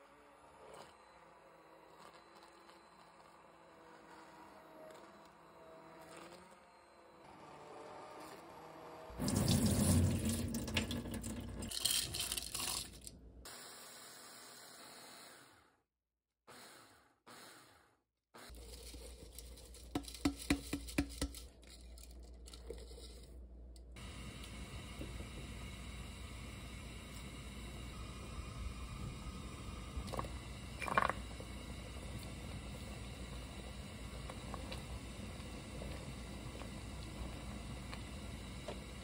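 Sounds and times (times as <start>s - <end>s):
electric chopper grinding rice: 0.0s - 9.2s
stick blender whirring: 0.0s - 13.1s.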